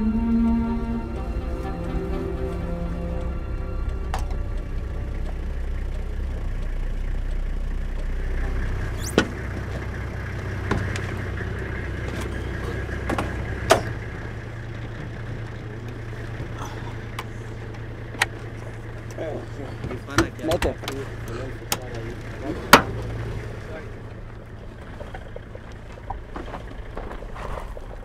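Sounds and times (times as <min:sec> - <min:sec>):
vehicle engine rumble: 0:00.0 - 0:28.0
doors and gear knocking: 0:08.5 - 0:23.3.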